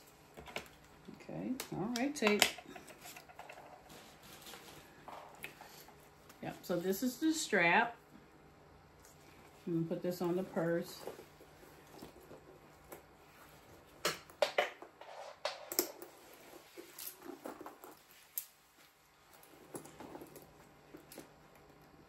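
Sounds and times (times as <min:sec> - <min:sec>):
rustling: 0:02.9 - 0:07.0.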